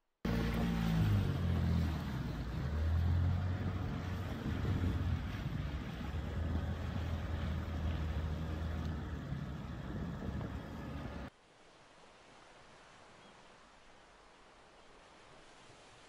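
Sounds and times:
wind: 0:00.0 - 0:16.0
water noise: 0:00.2 - 0:16.0
boat engine running: 0:00.3 - 0:11.3
faint steady hiss: 0:11.3 - 0:16.0.

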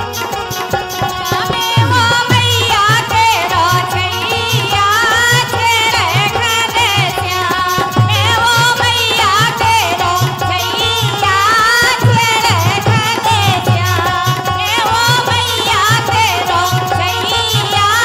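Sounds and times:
woman singing folk song: 0:01.3 - 0:18.0
hand drum beat: 0:01.5 - 0:03.8.

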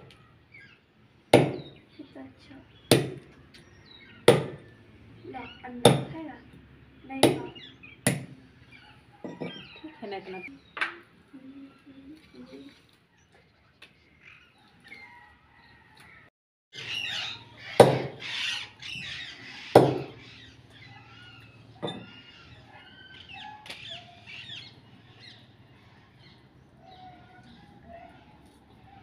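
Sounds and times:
birds chirping and squawking: 0:00.0 - 0:29.0
knife chopping on wooden block: 0:04.3 - 0:04.6, 0:19.8 - 0:20.1.

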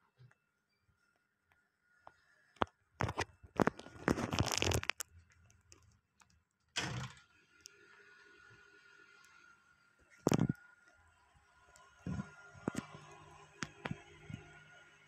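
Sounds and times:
rustling and scraping handling: 0:02.6 - 0:05.9
wooden door scraping open: 0:06.8 - 0:07.3.

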